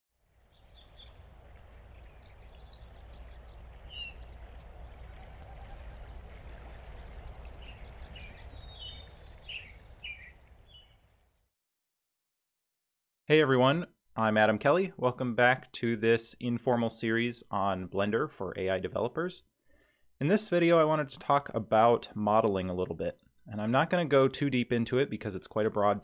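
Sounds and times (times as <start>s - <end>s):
low wind rumble: 0.4s - 11.2s
small birds chirping: 0.4s - 11.5s.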